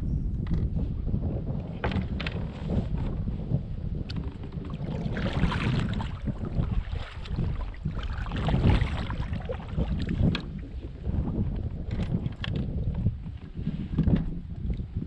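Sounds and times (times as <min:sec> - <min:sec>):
wind rumble on microphone: 0:00.0 - 0:15.0
paddle splashing in water: 0:03.9 - 0:15.0.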